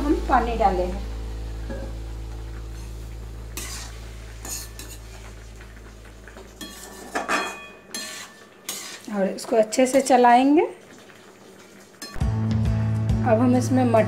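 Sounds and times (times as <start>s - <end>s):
low hum: 0.0s - 6.7s
metal spatula scraping a pan: 3.6s - 5.3s, 6.6s - 9.1s.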